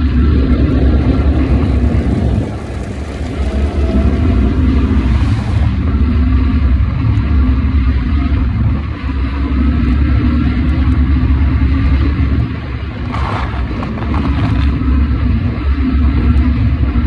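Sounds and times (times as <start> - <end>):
road vehicle rumble: 0.0 - 17.0.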